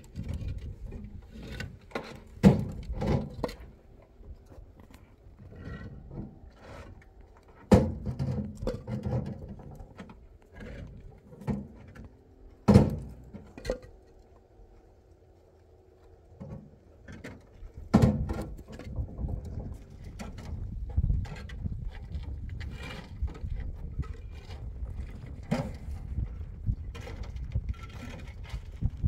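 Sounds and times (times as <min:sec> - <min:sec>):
scraping and handling noise: 0:15.9 - 0:29.0.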